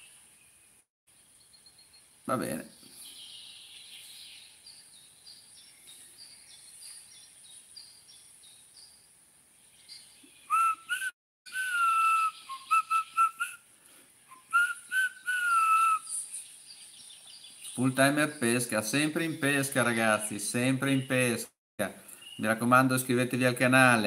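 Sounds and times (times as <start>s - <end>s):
faint high chirps: 1.3s - 8.9s
person whistling a tune: 10.5s - 13.6s, 14.3s - 16.1s.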